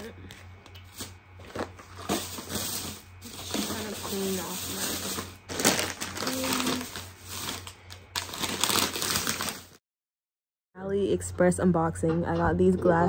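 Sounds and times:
crackly rustling handling noise: 0.3s - 9.8s.

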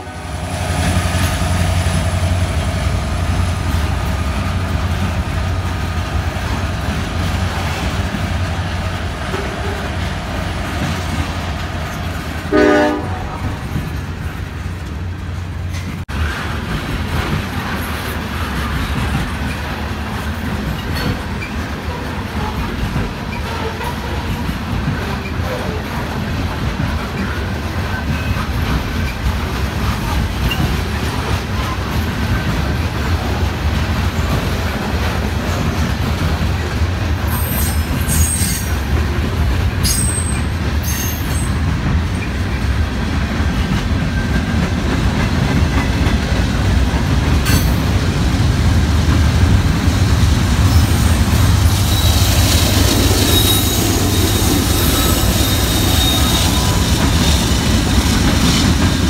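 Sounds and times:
freight train rumble and clatter: 0.0s - 59.0s
locomotive wheel squeal: 37.3s - 38.8s, 39.8s - 42.3s, 50.6s - 58.7s
train wheel screeching: 37.3s - 39.0s, 39.8s - 42.4s, 50.6s - 59.0s.

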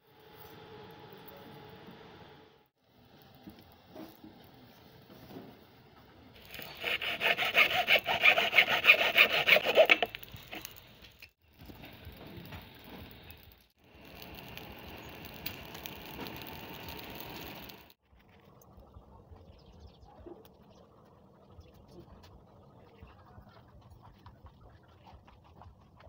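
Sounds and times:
hacksaw sawing through plastic: 6.4s - 10.6s.

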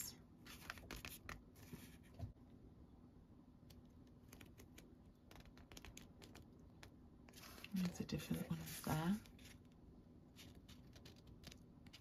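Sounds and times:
paper rustling: 0.4s - 2.2s.

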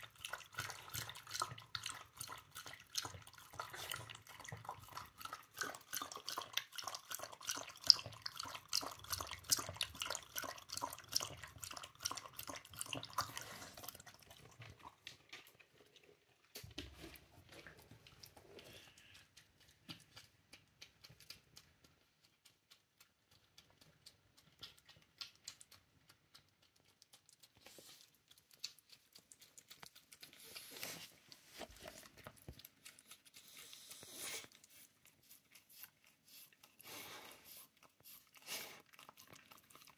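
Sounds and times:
dog lapping water: 0.0s - 39.9s
faint dog mouth sounds: 0.0s - 39.9s.

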